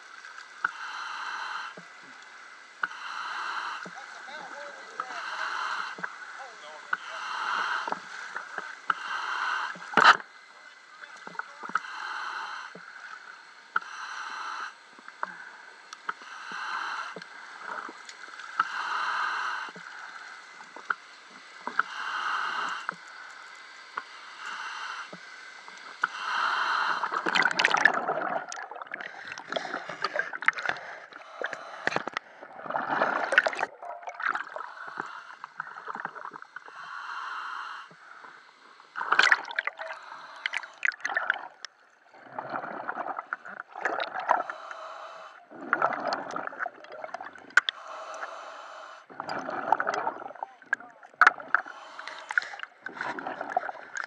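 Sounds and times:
scuba regulator breathing: 0.6s - 1.9s, 2.8s - 4.1s, 5.0s - 10.3s, 11.7s - 13.2s, 13.8s - 20.9s, 21.6s - 41.7s, 42.4s - 50.4s, 51.4s - 54.0s
rush of air bubbles: 27.0s - 36.5s, 39.0s - 44.5s, 45.5s - 47.8s, 49.1s - 51.7s, 52.3s - 54.0s.

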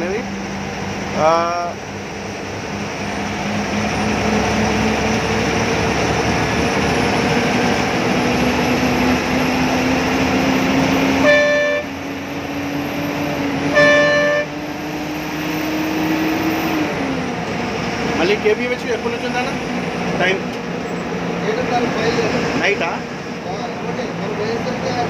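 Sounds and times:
bus engine and road noise: 0.0s - 25.0s
horn blasts: 11.0s - 12.1s, 13.6s - 14.6s.

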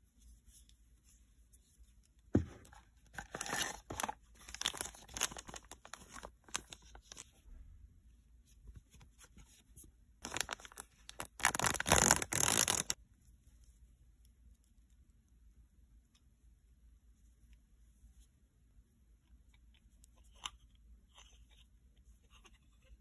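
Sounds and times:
foil bag crinkling: 3.2s - 7.1s, 10.2s - 13.0s.

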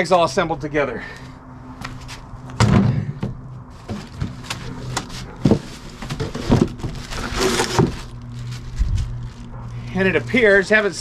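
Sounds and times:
knocks and clicks of packaging: 2.5s - 8.5s
rustling scrape: 3.7s - 10.2s.

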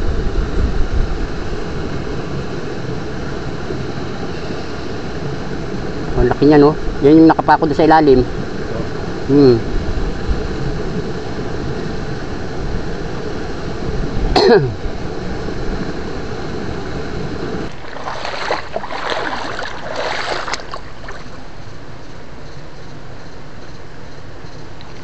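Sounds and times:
water rushing: 16.0s - 21.6s
water splashing: 17.7s - 21.6s.

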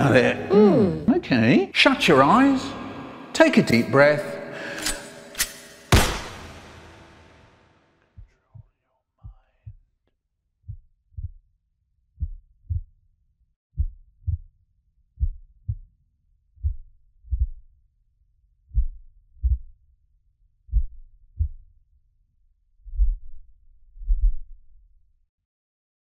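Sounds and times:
heartbeat thumps: 8.2s - 9.8s, 10.6s - 11.4s, 12.2s - 12.9s, 13.8s - 14.5s, 15.2s - 15.9s, 16.6s - 17.7s, 18.7s - 19.8s, 20.7s - 21.6s, 22.9s - 23.4s, 24.0s - 24.6s.

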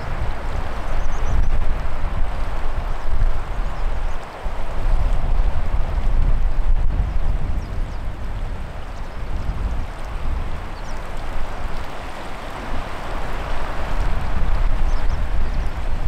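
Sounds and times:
choppy river water rushing: 0.0s - 16.0s
wind noise on microphone: 0.0s - 16.0s.

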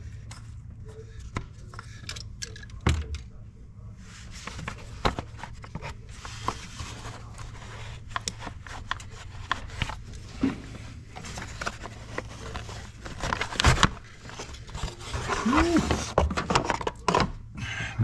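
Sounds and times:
plastic cover clicks and scrapes: 4.4s - 17.3s.

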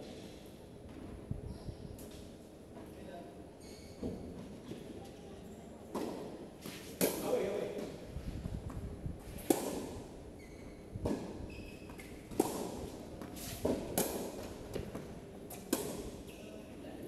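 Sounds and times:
tennis ball struck by racket: 9.4s - 10.0s, 12.3s - 14.9s, 15.5s - 16.1s
tennis ball bouncing on court: 11.0s - 16.1s.

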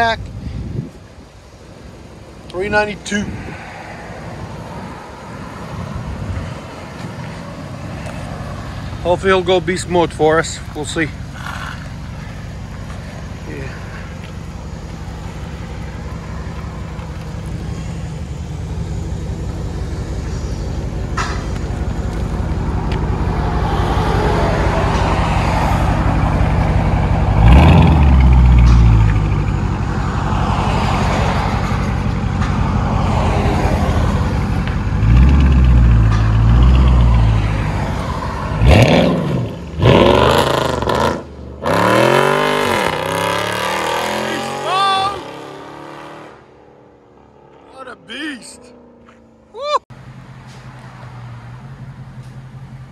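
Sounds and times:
vcar engine idling: 6.9s - 38.7s
car accelerating hard: 23.3s - 29.5s, 32.9s - 46.5s
engine revving: 23.4s - 32.0s, 33.0s - 37.8s, 38.4s - 46.6s.

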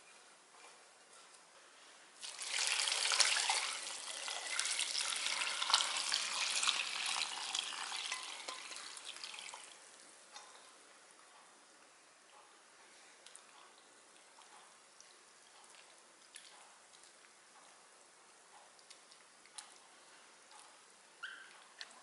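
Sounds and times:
liquid pouring and splashing: 2.2s - 9.9s.

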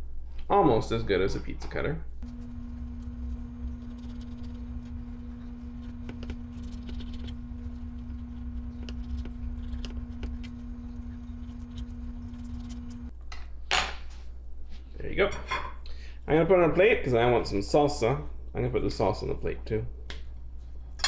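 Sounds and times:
steady low hum: 2.1s - 13.2s.

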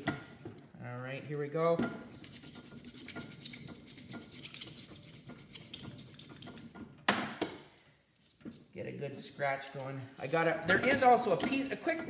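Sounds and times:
screwdriver scratching wire: 2.1s - 6.7s.

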